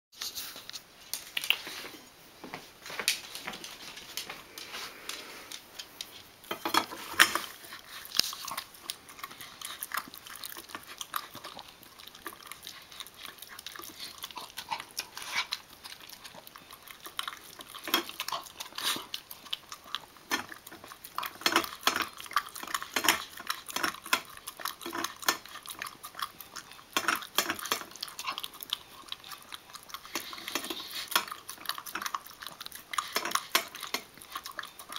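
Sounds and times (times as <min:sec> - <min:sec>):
metal bowl clinking and scraping: 0:06.5 - 0:07.6.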